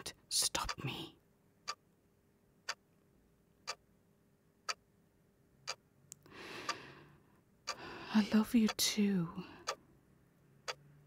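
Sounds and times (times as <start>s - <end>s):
clock ticking: 0.0s - 0.9s, 1.6s - 1.8s, 2.6s - 2.8s, 3.6s - 3.9s, 4.6s - 4.9s, 5.6s - 6.9s, 7.6s - 9.9s, 10.5s - 11.0s.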